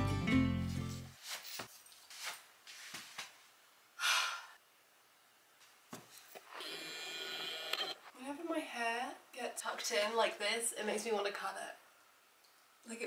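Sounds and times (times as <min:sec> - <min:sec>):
background music: 0:00.0 - 0:01.1.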